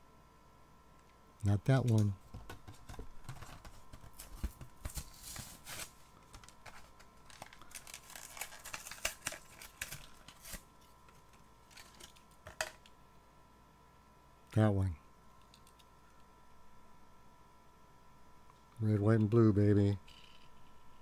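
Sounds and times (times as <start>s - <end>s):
card rustling: 1.8s - 12.9s.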